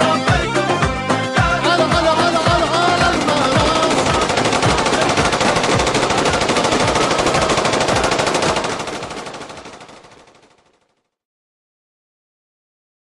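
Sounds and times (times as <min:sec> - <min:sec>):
machine-gun fire: 0:02.2 - 0:11.0.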